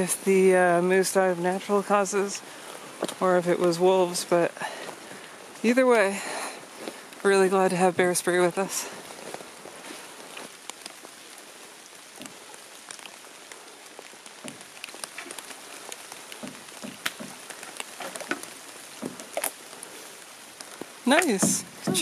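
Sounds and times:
rain falling through forest: 0.0s - 22.0s
soft low knocks: 16.3s - 19.4s, 21.3s - 22.0s.

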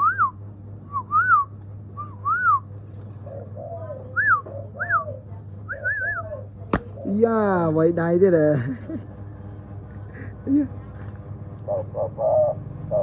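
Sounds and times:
dove cooing: 3.1s - 7.2s, 11.6s - 13.0s.

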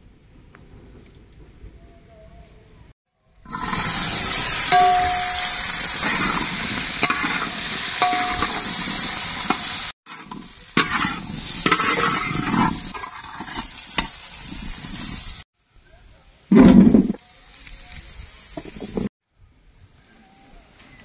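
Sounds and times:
crabs sizzling in oil: 3.4s - 15.5s, 17.2s - 19.1s.

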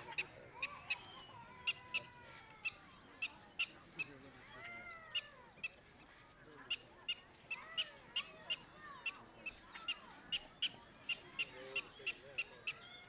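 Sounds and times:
prairie dog chirping: 0.0s - 5.8s, 6.7s - 13.0s.

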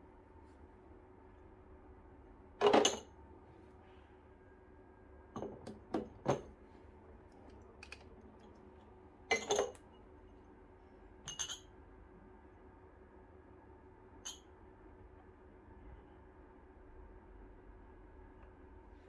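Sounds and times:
portafilter and cups clinking: 2.6s - 3.1s, 9.3s - 9.8s, 11.2s - 11.7s, 14.2s - 14.5s.

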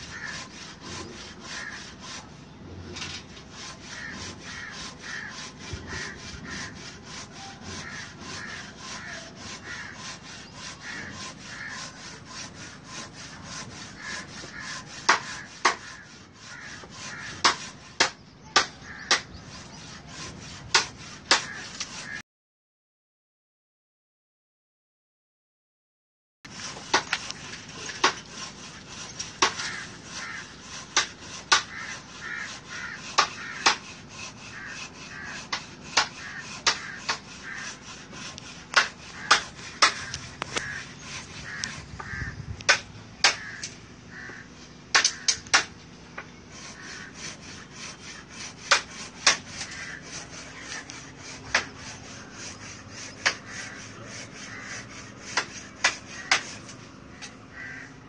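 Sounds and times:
crows cawing: 0.0s - 2.2s, 3.5s - 19.4s, 20.8s - 22.2s, 27.0s - 58.0s.

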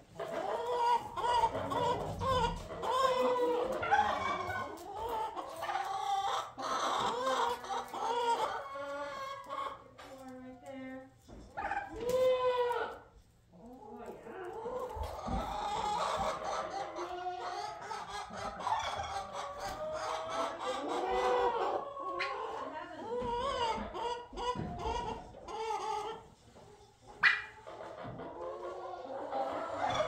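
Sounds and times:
chickens calling: 0.0s - 10.4s, 11.3s - 30.0s.

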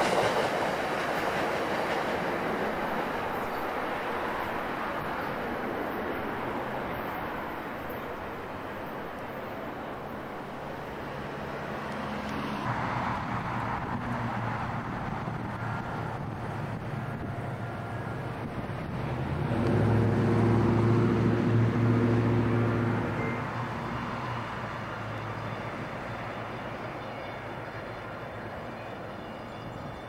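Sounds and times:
train rumble: 0.0s - 30.0s
locomotive diesel engine drone: 6.4s - 29.5s.

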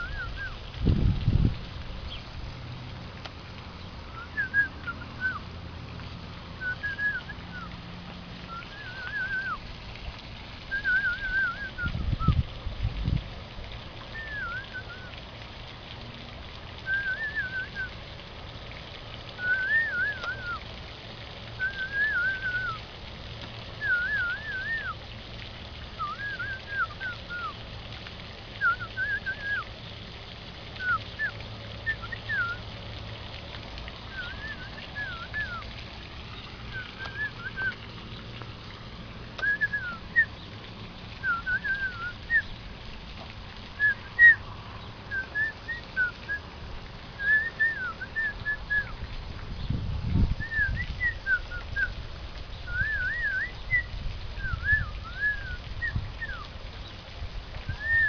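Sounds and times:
whistled bird-like chirping: 0.0s - 0.6s, 4.1s - 5.4s, 6.6s - 7.7s, 8.5s - 9.6s, 10.7s - 12.4s, 14.1s - 15.1s, 16.8s - 17.9s, 19.4s - 20.6s, 21.6s - 22.8s, 23.8s - 25.0s, 26.0s - 27.6s, 28.6s - 29.7s, 30.8s - 32.6s, 34.1s - 35.6s, 36.7s - 37.8s, 39.4s - 40.4s, 41.2s - 42.5s, 43.8s - 44.4s, 45.1s - 46.4s, 47.2s - 48.9s, 50.4s - 51.9s, 52.6s - 56.4s, 57.7s - 58.0s.

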